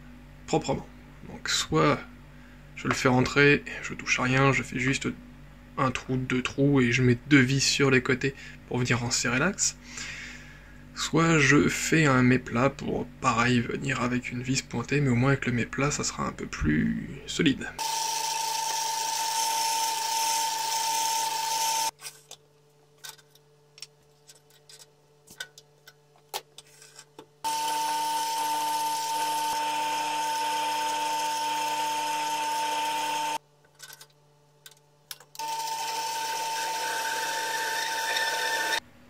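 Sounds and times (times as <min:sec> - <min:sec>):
metal lathe whine: 0:17.8 - 0:21.9, 0:27.5 - 0:33.4, 0:35.4 - 0:38.8.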